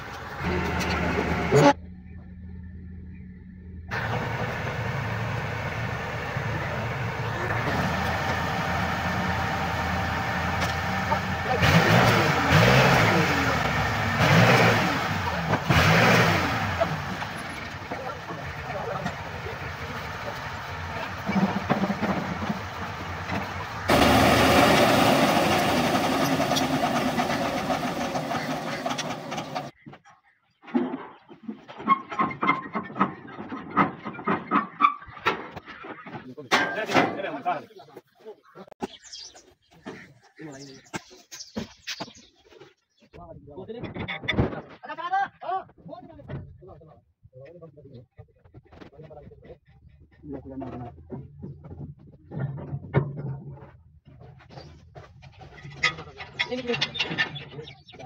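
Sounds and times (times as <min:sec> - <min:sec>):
engine running steadily: 0:00.0 - 0:29.7.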